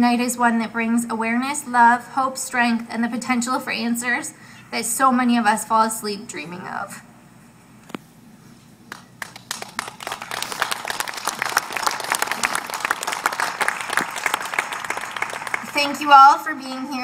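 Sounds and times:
audience applauding: 8.9s - 16.4s.

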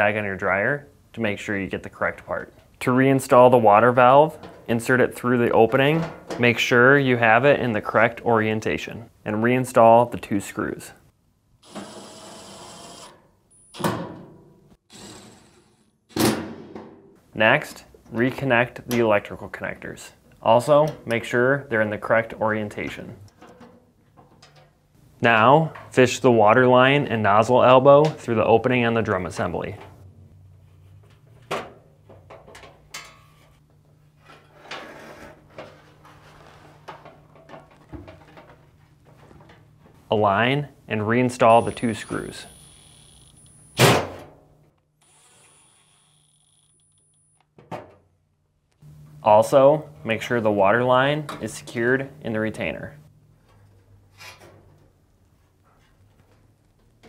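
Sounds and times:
power screwdriver running: 11.6s - 13.1s, 45.0s - 47.0s.

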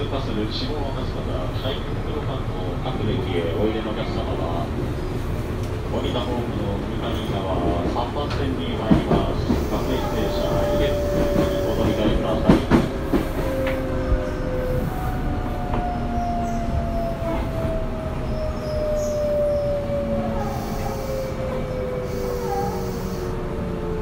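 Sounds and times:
train wheel clacks over rail joints: 7.2s - 13.8s.

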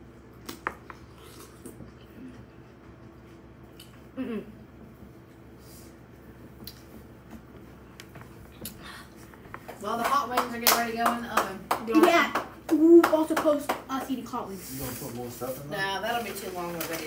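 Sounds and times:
low room hum: 0.0s - 17.0s
chewing and mouth sounds: 0.4s - 5.5s, 8.0s - 9.7s
short hummed vocal sound: 3.8s - 5.0s.

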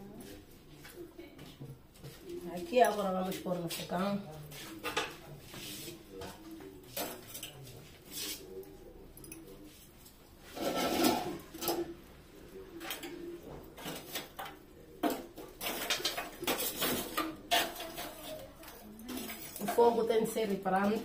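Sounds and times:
clatter of kitchenware: 4.8s - 5.2s, 6.9s - 7.7s, 10.4s - 12.0s, 13.8s - 21.0s.

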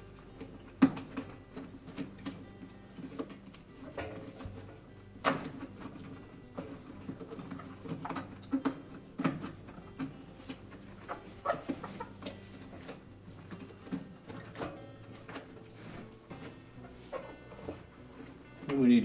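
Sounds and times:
rubber squeaking and rubbing: 11.0s - 12.8s, 16.8s - 17.6s.

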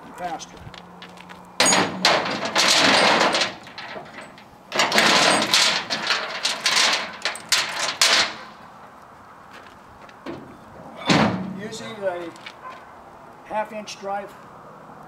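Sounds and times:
sharp metal knocks: 1.6s - 8.6s
chain rattling on metal flatbed: 1.6s - 8.7s.

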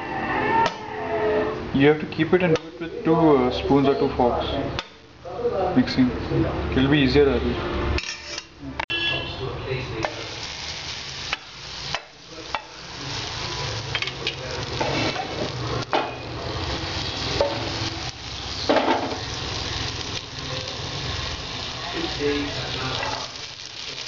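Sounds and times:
butter sizzling in a frying pan: 10.0s - 24.0s.

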